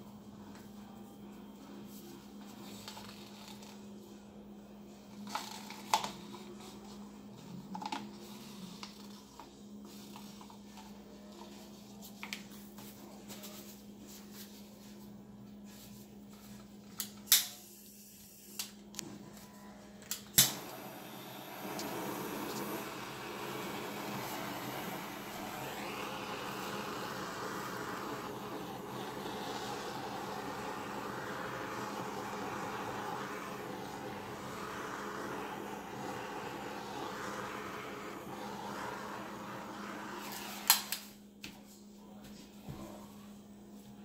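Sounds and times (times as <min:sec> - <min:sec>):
steady low hum: 0:19.3 - 0:41.4
loud steady rushing noise: 0:20.6 - 0:40.4.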